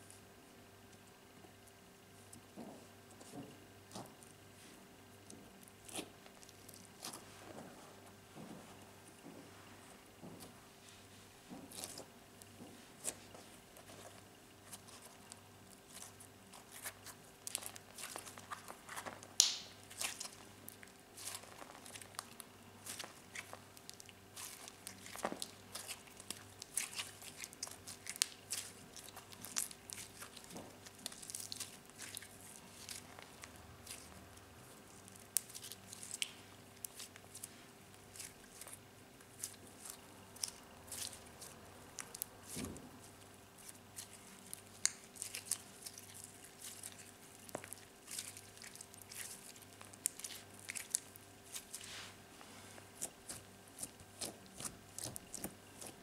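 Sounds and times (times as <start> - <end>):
slime squishing and crackling: 5.2 - 8.0, 11.6 - 56.0.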